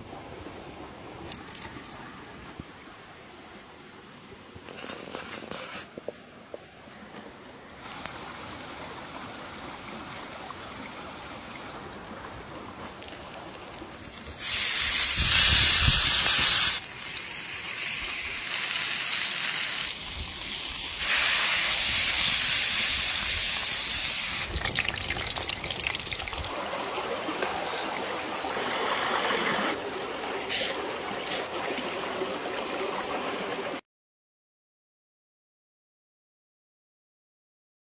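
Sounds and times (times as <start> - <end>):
stream running over rocks: 0.0 - 33.8
steak sizzling on a griddle: 14.1 - 24.5.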